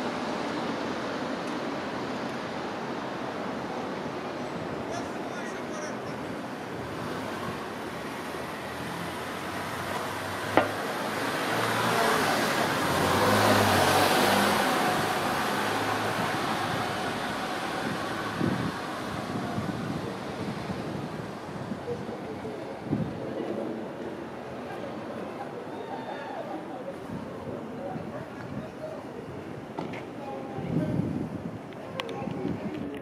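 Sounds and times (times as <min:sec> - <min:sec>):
traffic noise: 0:00.0 - 0:33.0
vehicle passing: 0:06.9 - 0:21.8.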